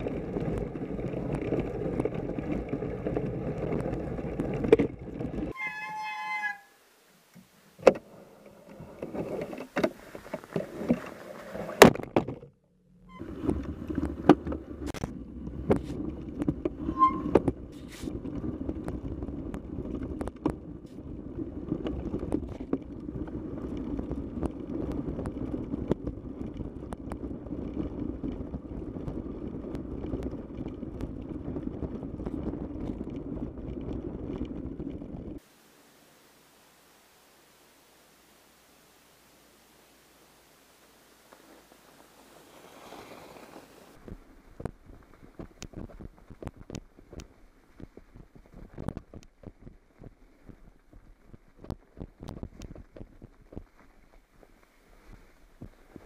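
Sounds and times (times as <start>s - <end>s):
wind on camera: 0.0s - 5.6s, 13.1s - 35.5s, 41.4s - 56.0s
high squeal: 5.5s - 6.8s, 16.8s - 17.4s
bike frame rattling and clicking: 13.1s - 35.4s
tyres crunching over snow: 40.4s - 56.0s.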